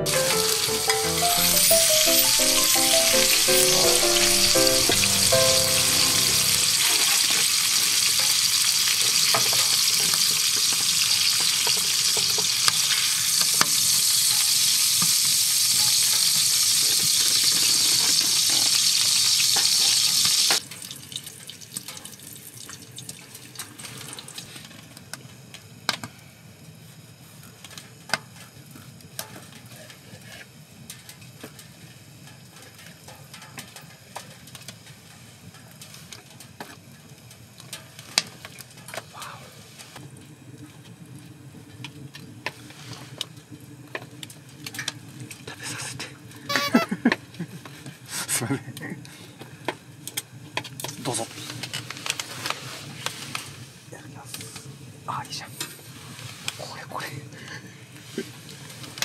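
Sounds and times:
steak sizzling in a frying pan: 0.3s - 23.0s.

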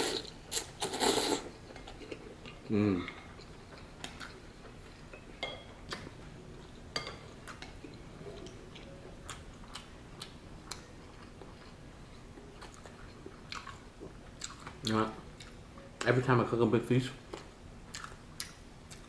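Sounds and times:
person chewing noodles: 0.0s - 5.0s, 7.4s - 15.6s, 17.3s - 19.0s.

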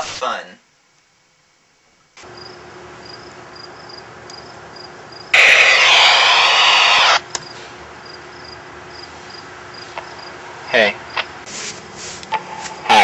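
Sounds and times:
crickets chirping: 2.2s - 5.3s, 7.4s - 11.3s
loud rushing noise: 5.4s - 7.2s.

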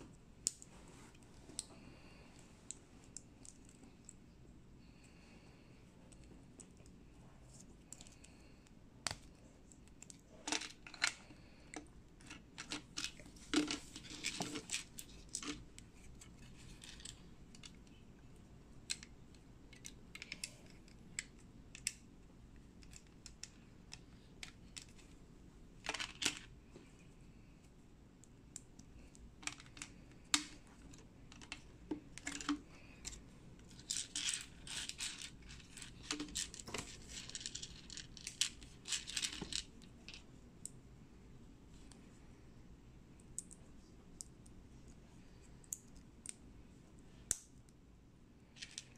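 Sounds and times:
plastic bricks clicking and snapping: 29.4s - 30.6s.

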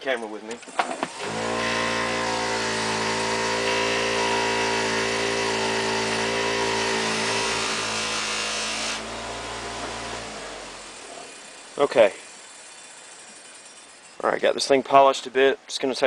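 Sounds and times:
polishing wheel motor hum: 1.0s - 14.2s
metal part hissing on wheel: 10.9s - 14.4s.

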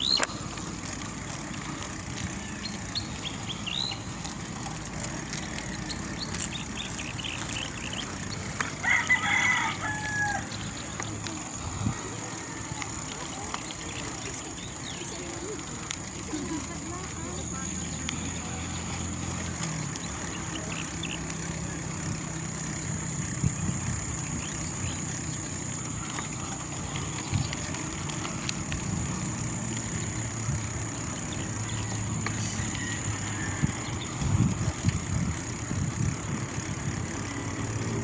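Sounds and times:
bicycle bumps: 0.0s - 38.0s
bicycle tyres rumbling on concrete: 0.0s - 38.0s
wind on microphone: 33.4s - 37.0s.

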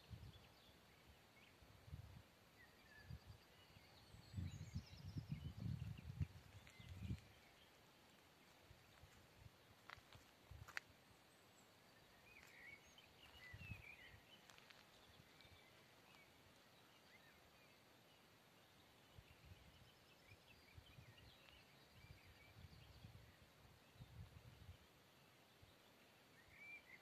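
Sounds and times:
faint birds chirping: 0.0s - 27.0s
wind on microphone: 4.1s - 7.4s.

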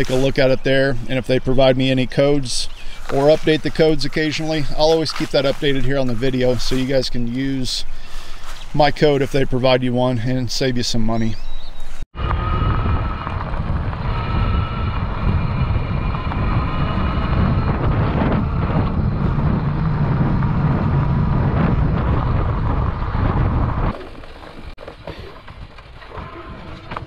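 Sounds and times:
tyres rolling over gravel: 0.0s - 9.4s, 23.9s - 27.0s
wind buffeting microphone: 0.0s - 27.0s.

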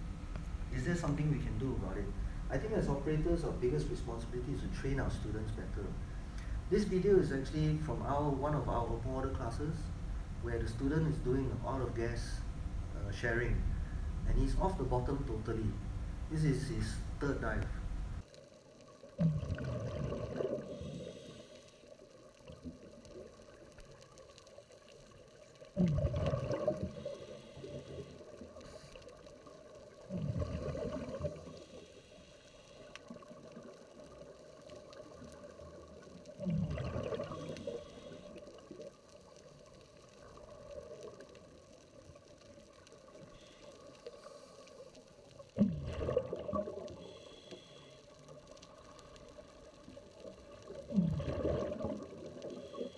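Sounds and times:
faint hiss: 0.0s - 19.4s, 20.1s - 52.9s
gurgling rush of bubbles: 19.0s - 21.4s, 24.8s - 28.6s, 29.8s - 31.7s, 33.1s - 39.0s, 45.4s - 47.1s, 48.7s - 52.9s.

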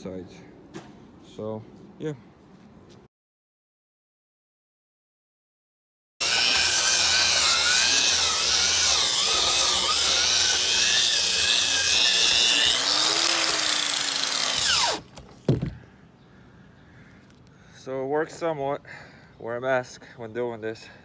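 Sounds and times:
angle grinder motor whine: 6.2s - 15.0s
wire brush scratching wood: 6.2s - 15.0s.

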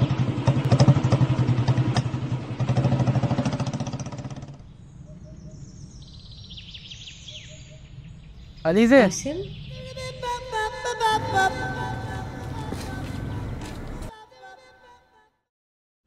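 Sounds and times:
engine running with fast pulse: 0.0s - 5.6s, 10.1s - 14.1s
faint bird chirps: 4.7s - 10.3s.

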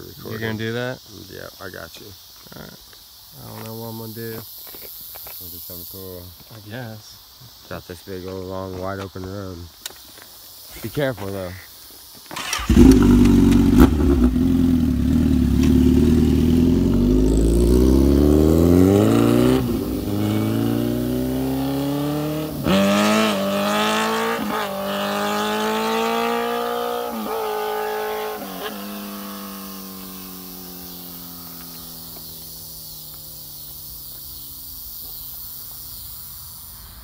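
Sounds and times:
motorcycle engine revving: 12.4s - 35.2s.

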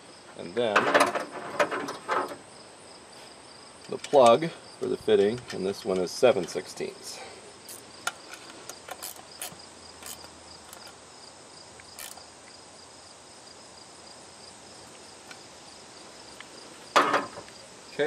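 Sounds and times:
crickets chirping: 0.0s - 18.0s
wrench metallic clicks: 7.7s - 11.0s, 11.8s - 12.2s.

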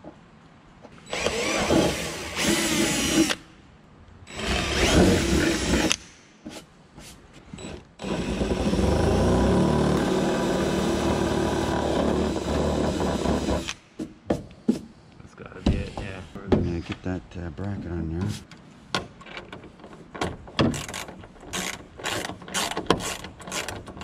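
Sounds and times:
power drill running: 1.1s - 3.4s.

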